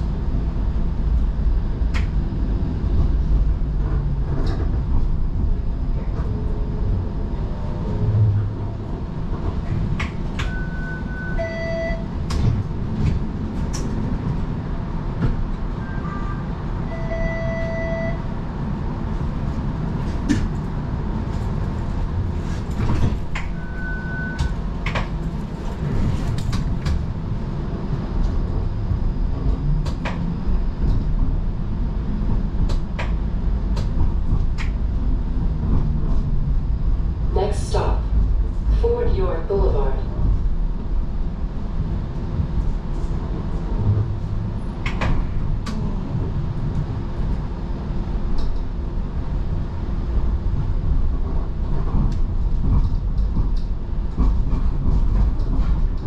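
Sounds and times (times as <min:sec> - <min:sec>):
streetcar rumble: 0:00.0 - 0:56.0
short electronic beeps: 0:10.4 - 0:12.0, 0:16.9 - 0:18.2.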